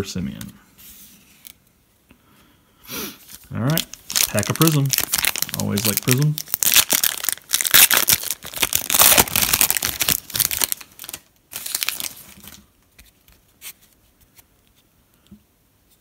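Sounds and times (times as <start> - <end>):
foil wrapper crinkling and tearing: 3.3 - 12.7.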